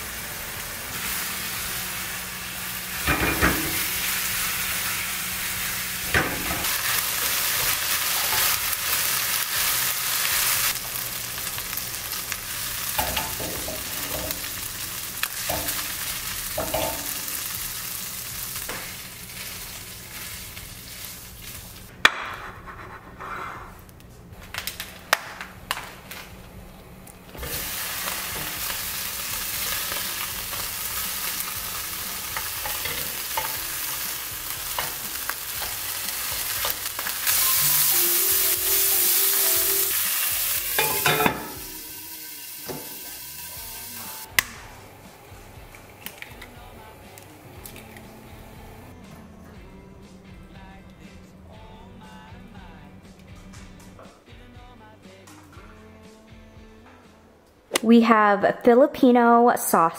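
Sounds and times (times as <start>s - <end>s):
meat sizzling in a frying pan: 0.0s - 21.9s, 27.4s - 44.4s.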